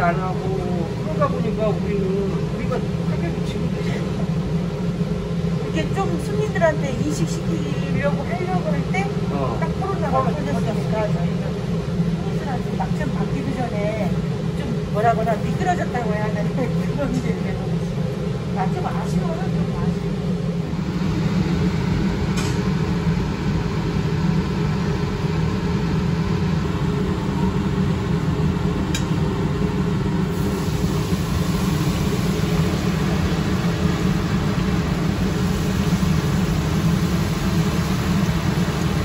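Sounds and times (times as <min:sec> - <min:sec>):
low mechanical hum: 0:00.0 - 0:39.0
oil sizzling in deep fryer: 0:30.3 - 0:39.0.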